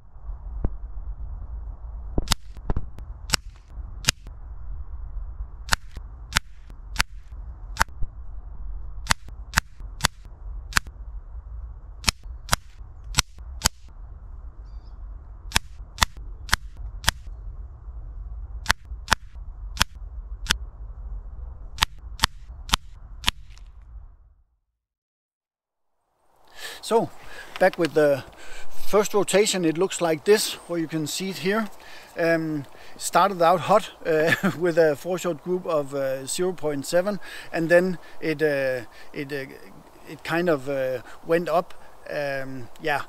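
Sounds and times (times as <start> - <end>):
low rumble: 0.0 - 24.8.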